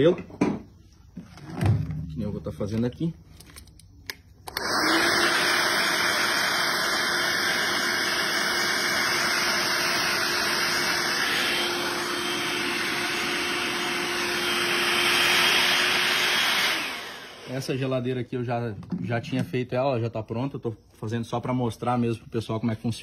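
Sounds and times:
hair dryer blowing: 0:04.5 - 0:18.0.

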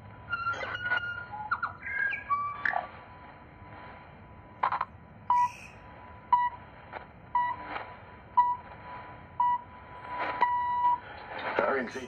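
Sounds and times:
faint whistle: 0:05.3 - 0:05.8
static crackles: 0:06.6 - 0:12.0.

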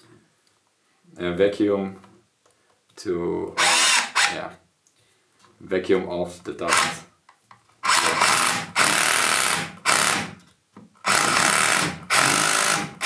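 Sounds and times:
hammer drill motor spinning: 0:03.6 - 0:04.4, 0:06.7 - 0:07.0, 0:07.8 - 0:10.3, 0:11.0 - 0:13.0.

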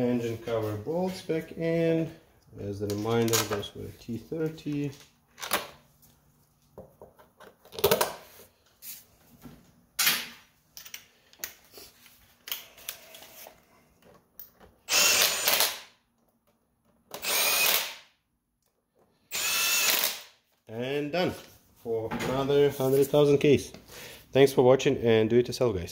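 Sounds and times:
cordless impact driver running: 0:14.9 - 0:15.8, 0:17.2 - 0:18.0, 0:19.3 - 0:20.3.

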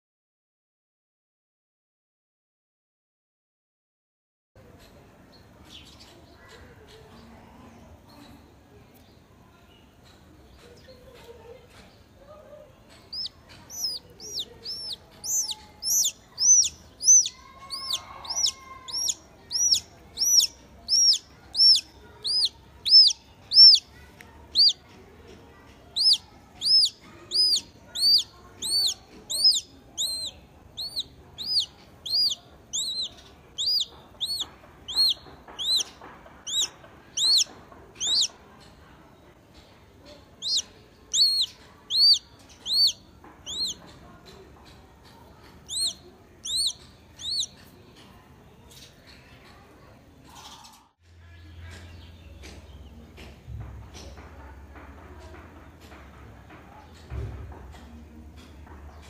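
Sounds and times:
chick peeping: 0:12.3 - 0:38.8, 0:40.0 - 0:48.0.

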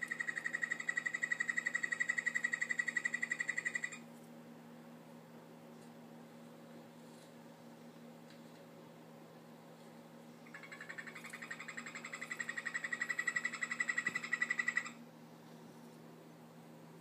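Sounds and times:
frog buzzy trill: 0:00.0 - 0:04.0, 0:10.5 - 0:15.0.

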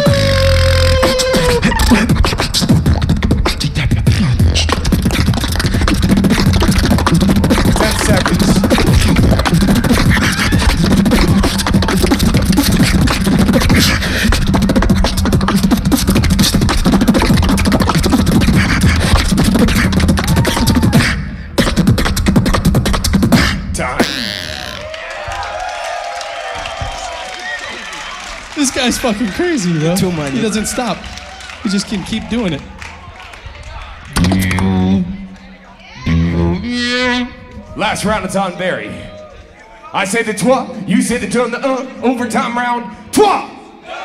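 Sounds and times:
beatboxing into a microphone: 0:00.0 - 0:24.9, 0:34.0 - 0:35.4, 0:36.0 - 0:38.3
deep bass tone: 0:00.0 - 0:24.9, 0:34.1 - 0:35.3, 0:36.0 - 0:37.7.

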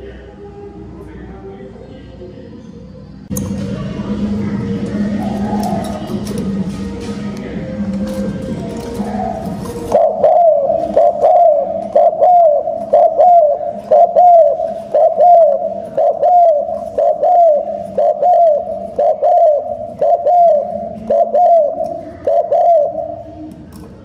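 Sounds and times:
dove cooing: 0:04.9 - 0:06.4, 0:08.5 - 0:23.6.

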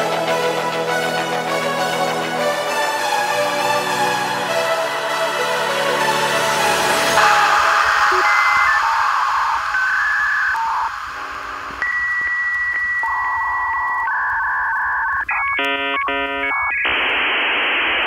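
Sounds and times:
electronic beeps and tones: 0:07.2 - 0:17.3
static hiss: 0:07.2 - 0:18.0.

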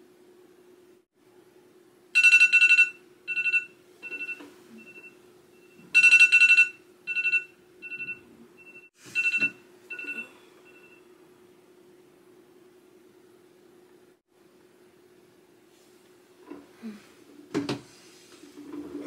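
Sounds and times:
phone alarm chime ringing: 0:02.2 - 0:11.0.

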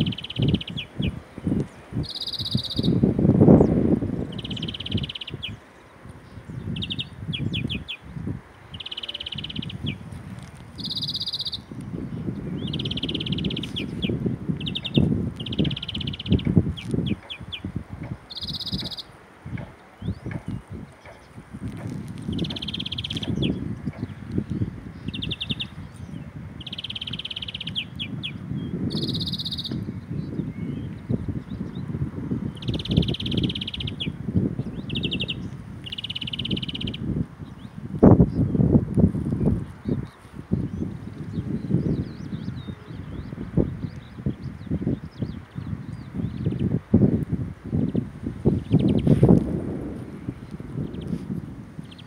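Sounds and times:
finch trilling and chirping: 0:00.0 - 0:01.2, 0:02.0 - 0:03.7, 0:04.3 - 0:05.6, 0:06.3 - 0:08.1, 0:08.7 - 0:17.7, 0:18.3 - 0:19.1, 0:22.2 - 0:31.8, 0:32.5 - 0:37.7.

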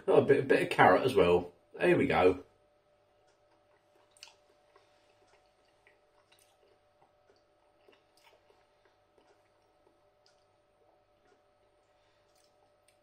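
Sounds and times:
faint steady hum: 0:00.0 - 0:13.0
person chewing food: 0:03.0 - 0:13.0
wet mouth clicks: 0:03.3 - 0:08.6.

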